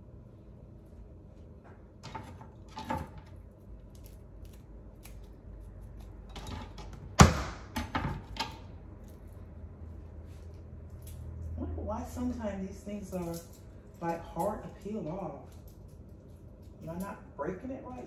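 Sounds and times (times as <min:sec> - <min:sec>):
garlic being crushed: 0:03.1 - 0:09.3.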